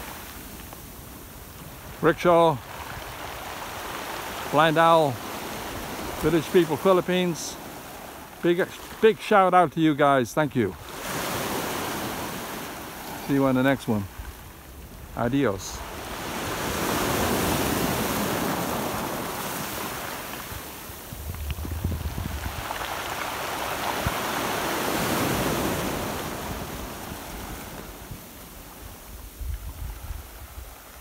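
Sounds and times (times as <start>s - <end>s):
waves washing up pebble beach: 0.0s - 31.0s
wind rumbling on microphone: 15.8s - 31.0s.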